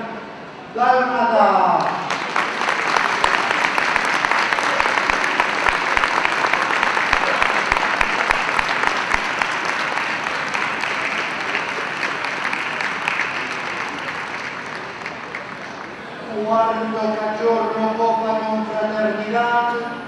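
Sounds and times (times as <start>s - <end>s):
audience applauding: 1.8s - 16.3s.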